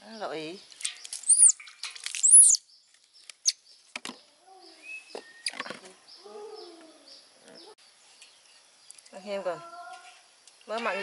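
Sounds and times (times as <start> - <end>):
birds chirping: 0.0 - 9.9
water splashing in a metal basin: 0.7 - 2.4.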